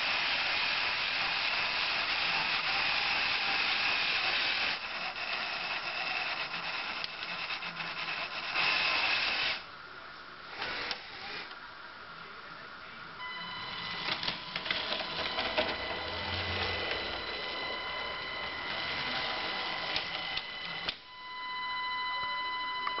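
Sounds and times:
toy train motor whining: 0.0 - 9.7, 10.5 - 11.6, 13.2 - 21.0
plastic train and track clicks: 14.0 - 17.0.

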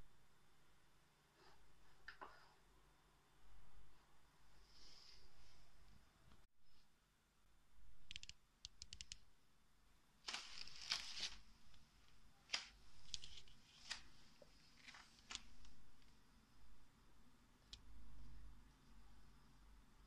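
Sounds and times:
brushing rustles: 10.3 - 11.5.

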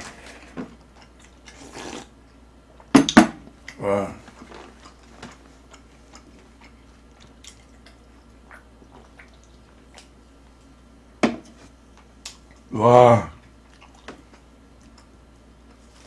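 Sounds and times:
mouth and swallowing sounds: 1.0 - 2.1.

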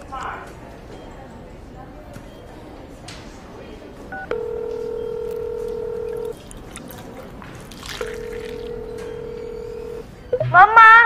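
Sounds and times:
electronic ringing tone: 4.2 - 6.4, 8.0 - 10.8
two-note electronic chirp: 9.1 - 10.8.

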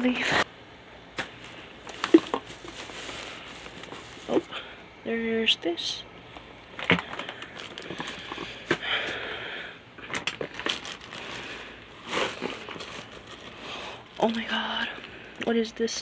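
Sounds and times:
plastic bags crinkling: 1.2 - 4.7, 6.7 - 8.7, 10.0 - 15.2.

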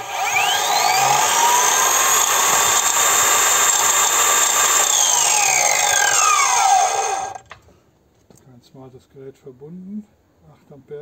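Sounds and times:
angle grinder whining: 0.0 - 7.5.

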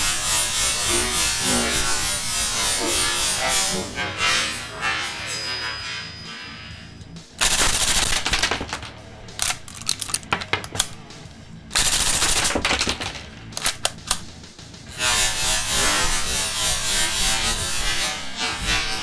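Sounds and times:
cap gun firing: 7.4 - 11.0.

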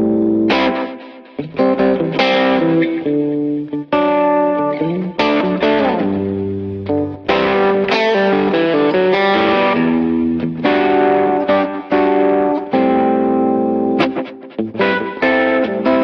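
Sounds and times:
plucked guitar melody: 0.0 - 16.0.

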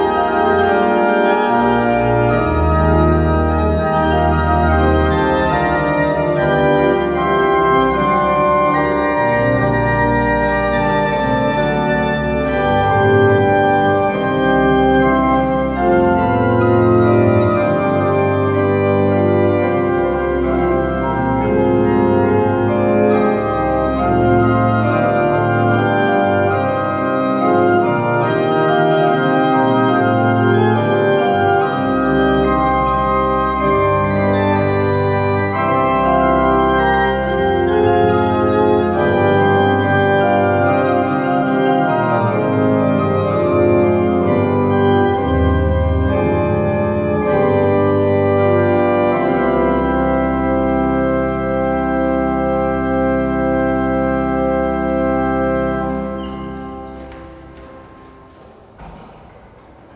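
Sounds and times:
pipe organ playing: 0.0 - 59.9.

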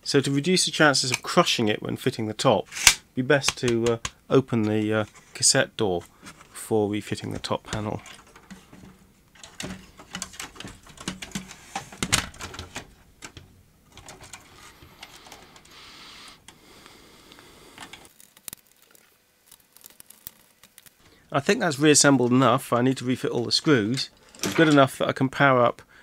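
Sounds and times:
plastic parts clicking and rattling: 2.7 - 4.2, 7.1 - 15.8, 17.8 - 21.1, 23.4 - 25.0.

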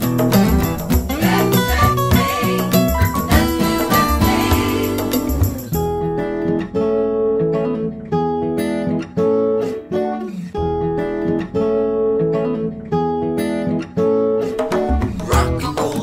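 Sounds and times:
backing music: 0.0 - 6.4
acoustic guitar strumming: 0.0 - 16.0.

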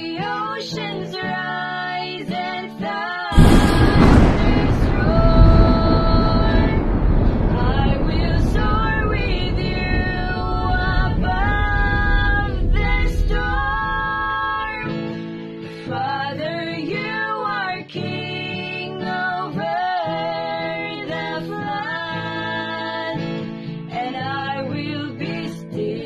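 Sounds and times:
guitar accompaniment: 0.0 - 26.0
women singing: 0.0 - 26.0
low rushing noise: 3.4 - 15.1.

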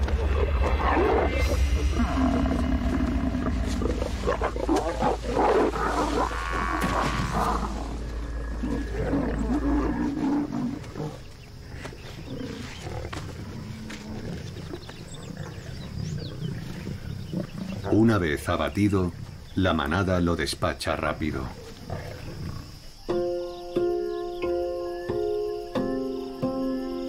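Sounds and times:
drawn-out pitched animal call: 0.0 - 17.9
lions growling and snarling: 0.0 - 18.2, 21.5 - 22.9.

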